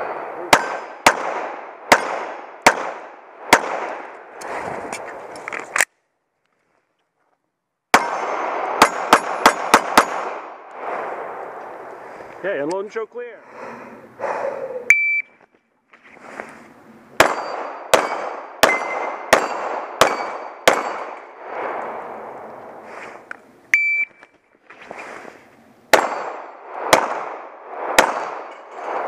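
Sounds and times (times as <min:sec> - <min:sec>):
pistol shots: 0:00.5 - 0:04.1, 0:07.9 - 0:10.6, 0:17.2 - 0:21.3, 0:25.9 - 0:29.0
shot timer beep: 0:14.9 - 0:15.3, 0:23.7 - 0:24.2.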